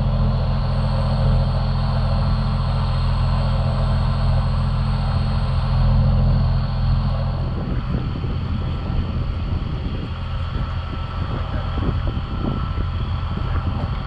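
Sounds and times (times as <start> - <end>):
diesel lorry engine running: 0.0 - 14.0
wind buffeting microphone: 0.0 - 14.0.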